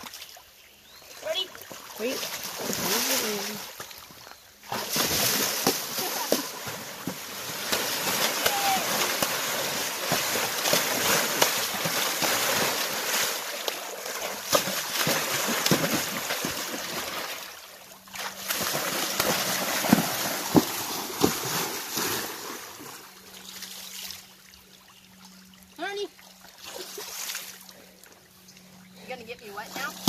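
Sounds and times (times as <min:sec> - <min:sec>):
horse hooves splashing water: 0:01.1 - 0:24.4.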